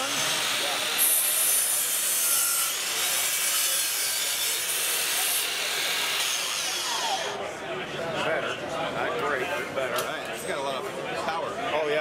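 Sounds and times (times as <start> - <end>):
miter saw cutting wood: 0.0 - 7.4.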